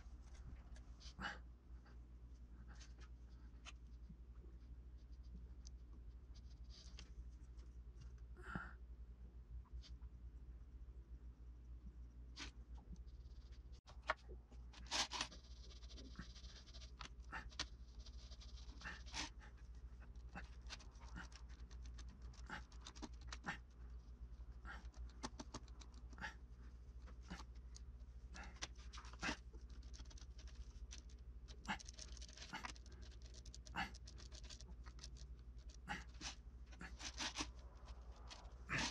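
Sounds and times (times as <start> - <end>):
steady low hum: 0.0 - 38.9
sculpting tool scratching clay: 14.8 - 38.9.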